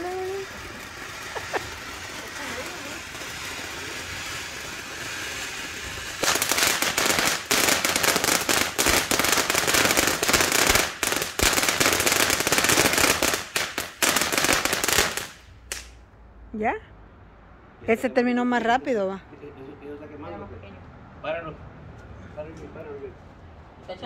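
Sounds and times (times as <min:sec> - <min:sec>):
firework hissing and crackling: 0:00.0 - 0:16.0.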